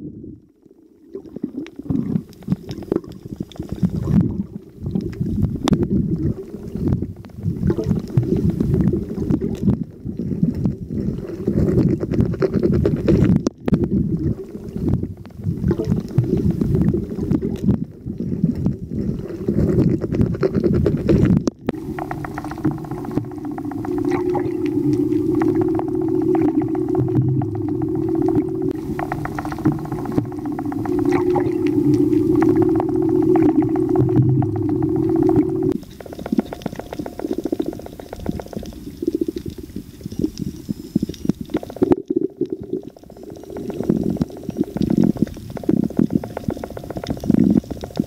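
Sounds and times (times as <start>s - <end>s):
underwater rumbling and gurgling: 0.0s - 48.0s
steady hum with held tones: 21.7s - 48.0s.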